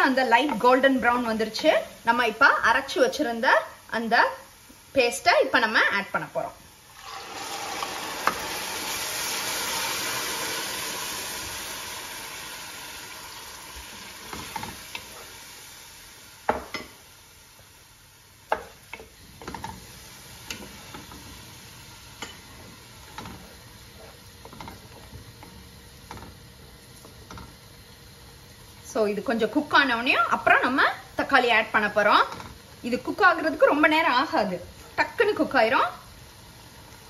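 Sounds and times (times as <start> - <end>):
paste sizzling in hot oil: 6.7 - 37.0
spatula stirring and scraping: 22.2 - 27.6.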